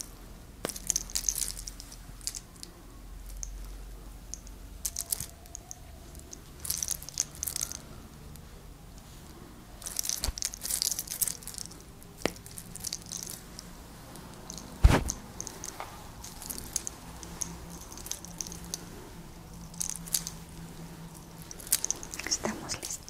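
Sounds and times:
hair crackling and snapping: 0.0 - 9.2, 9.8 - 23.0
loud thump: 14.8 - 15.2.

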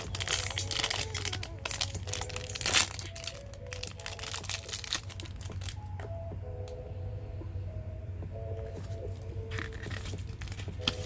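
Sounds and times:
foil wrapper crackling: 0.0 - 5.8, 9.5 - 11.0.

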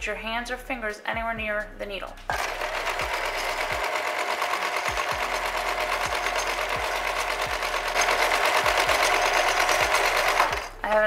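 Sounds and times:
sewing machine stitching: 2.3 - 11.0.

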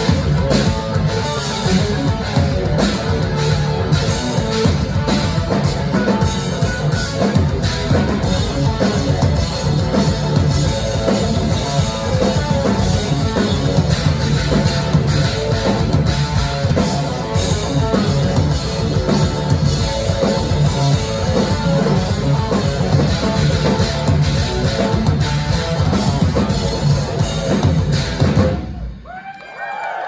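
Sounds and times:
live rock band playing: 0.0 - 29.0
crowd whooping: 28.6 - 30.0.

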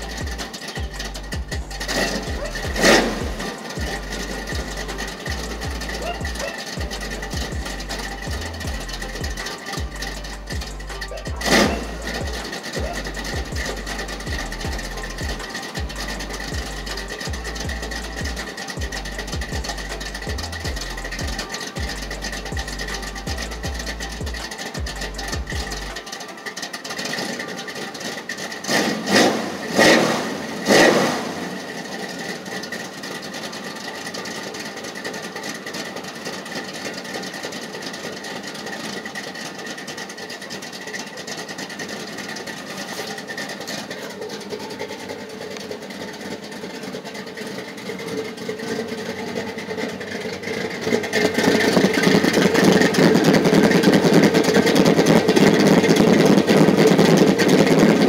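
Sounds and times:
loud engine bursts: 0.0 - 58.0
pickup truck engine running: 0.0 - 58.0
man talking: 10.7 - 13.6.

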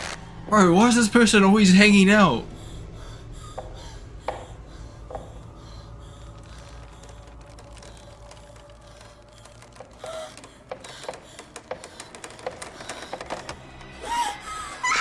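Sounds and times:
irregular clicks and knocks: 3.5 - 14.1.

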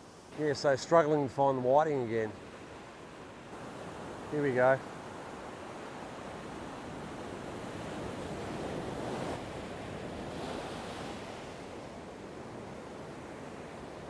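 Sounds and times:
ocean surf breaking: 0.4 - 14.0.

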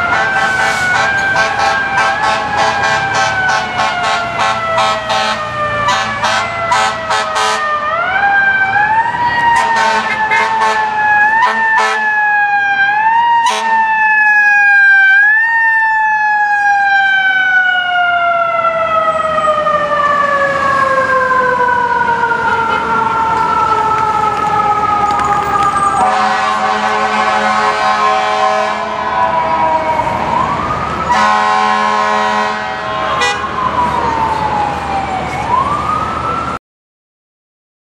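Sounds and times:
fire engine siren: 0.0 - 36.6
air horn blasts: 0.1 - 7.7, 9.6 - 12.1, 13.4 - 13.9, 26.0 - 29.3, 31.1 - 33.6.

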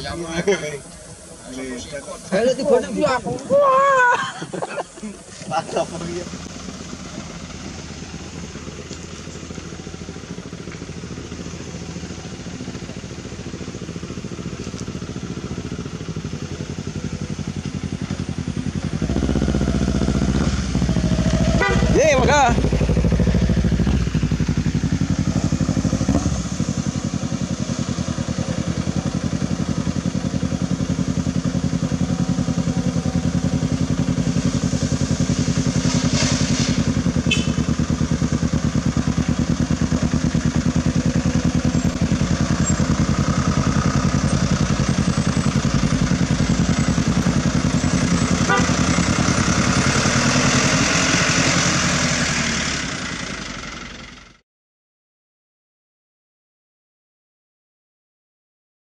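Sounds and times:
motorcycle engine running: 4.9 - 54.4.

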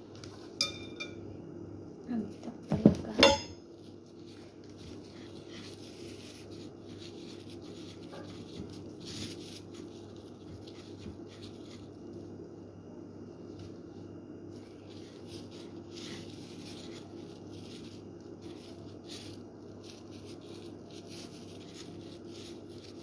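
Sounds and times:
steady low hum: 0.0 - 23.0
gloved hand rustling in breadcrumbs: 3.7 - 23.0.

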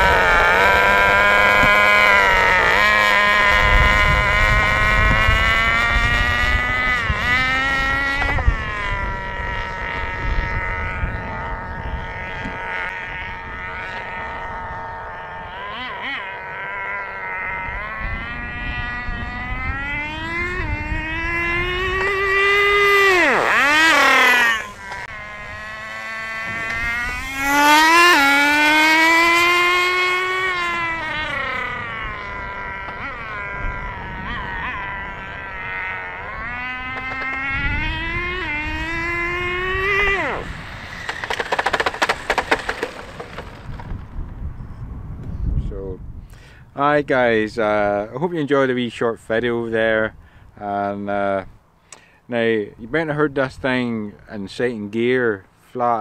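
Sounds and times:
model car engine revving: 0.0 - 44.4.

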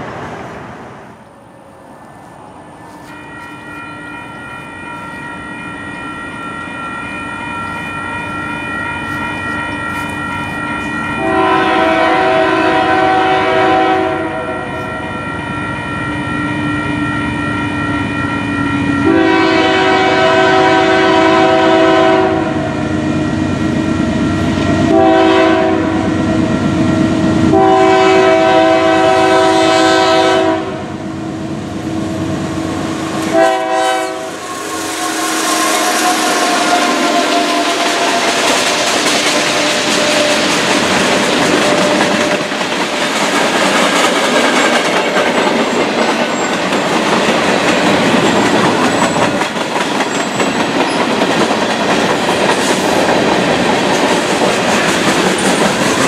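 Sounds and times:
train passing: 0.0 - 56.0
locomotive air horn: 7.0 - 23.6, 24.3 - 26.8, 27.4 - 31.0, 33.2 - 40.6.

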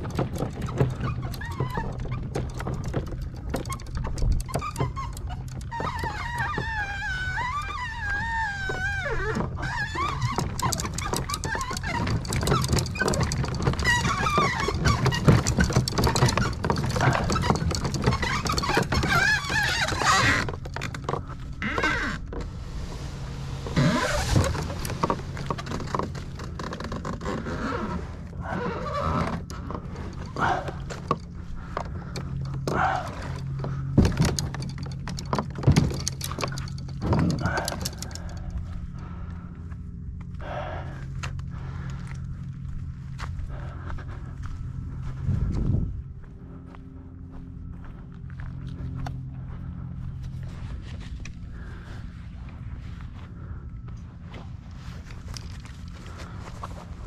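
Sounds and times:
gear rattling against kayak hull: 0.0 - 39.3, 54.3 - 57.0
low steady rumble: 0.0 - 57.0.

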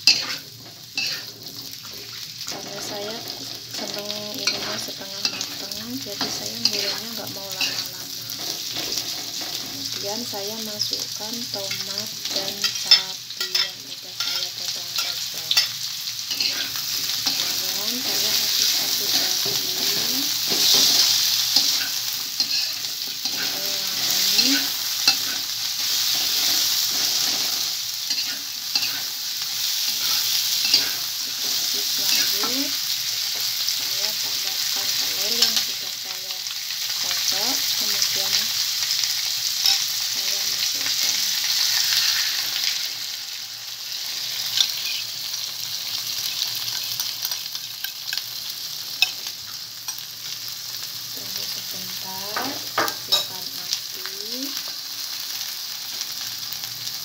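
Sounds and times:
metal spoon scraping pan: 0.0 - 9.8, 11.6 - 29.1, 29.8 - 32.7
vegetables sizzling in oil: 0.0 - 57.0.

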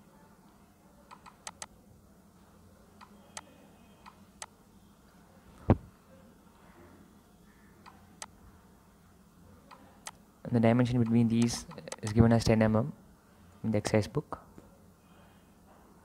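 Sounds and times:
computer mouse clicking: 1.1 - 1.7, 11.0 - 12.1.

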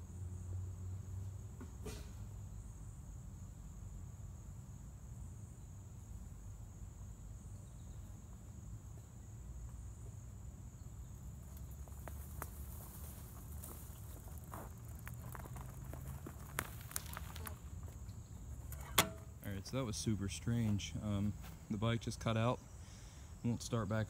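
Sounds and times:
insects trilling: 0.0 - 24.0
footsteps in leaf litter: 11.9 - 17.7.

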